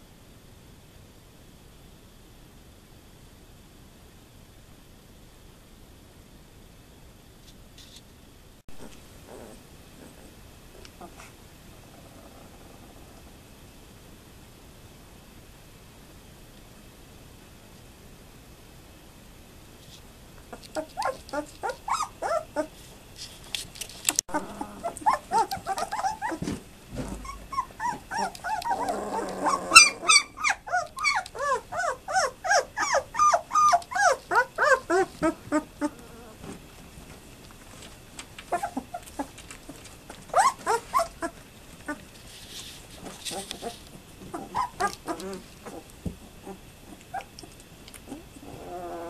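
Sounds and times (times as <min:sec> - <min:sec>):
puppies whimpering and squealing: 0:20.5 - 0:22.8, 0:24.3 - 0:36.6, 0:38.5 - 0:42.0, 0:43.0 - 0:49.0.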